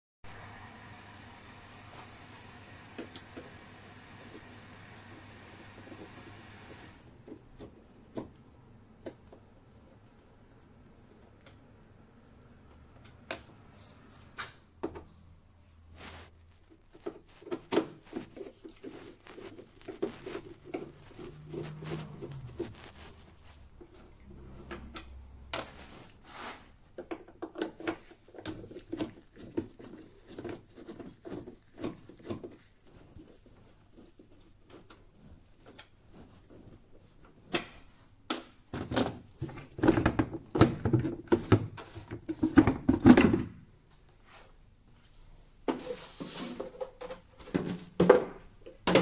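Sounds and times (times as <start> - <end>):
plastic scraping and rubbing: 15.9 - 24.9, 25.8 - 37.2.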